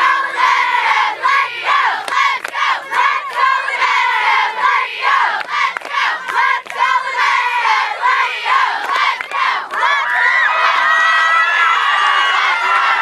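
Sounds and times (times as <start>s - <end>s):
crowd of girls screaming and cheering: 9.6s - 13.0s.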